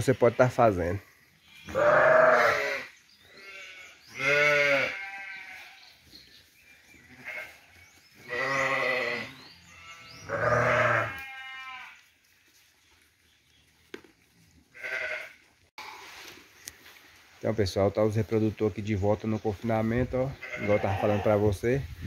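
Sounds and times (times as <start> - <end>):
livestock bleating: 0.0 - 6.0, 7.0 - 12.0, 14.7 - 16.2, 20.3 - 21.5.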